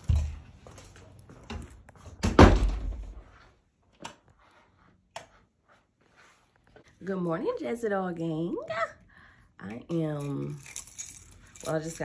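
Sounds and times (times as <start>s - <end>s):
door shutting with a thud: 2.2s - 3.2s.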